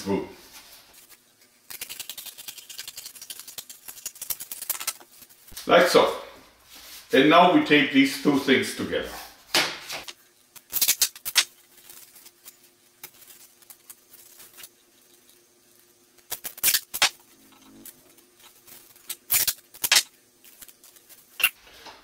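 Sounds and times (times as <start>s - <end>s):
duct tape ripping: 1.0s - 5.2s, 10.5s - 14.7s, 16.2s - 17.2s, 18.9s - 21.6s.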